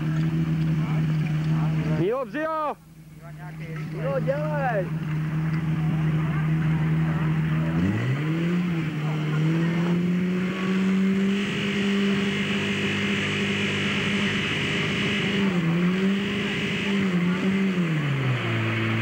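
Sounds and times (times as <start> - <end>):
pump engine revving: 0.0 - 2.1, 3.6 - 19.0
high whine: 8.6 - 19.0.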